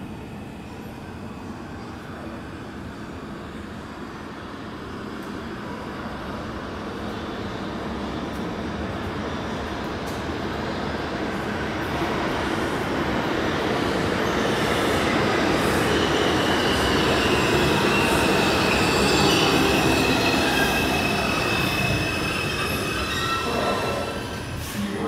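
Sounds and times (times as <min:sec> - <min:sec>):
high wheel squeal: 0:16.0 - 0:24.8.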